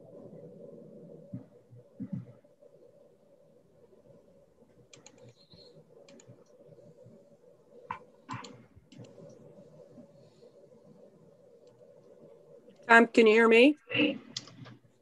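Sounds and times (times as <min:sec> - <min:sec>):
low hum: 0:00.0 - 0:15.0
computer keyboard typing: 0:04.9 - 0:06.4, 0:14.4 - 0:14.8
sharp clicks: 0:04.9 - 0:06.5.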